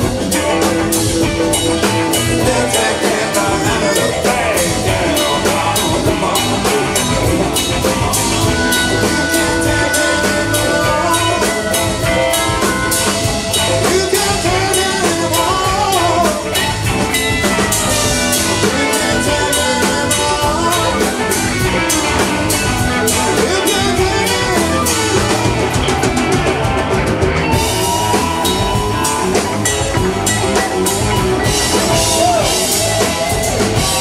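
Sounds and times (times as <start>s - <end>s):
bass guitar: 0.0s - 34.0s
drum kit: 0.0s - 34.0s
electric guitar lead: 0.0s - 34.0s.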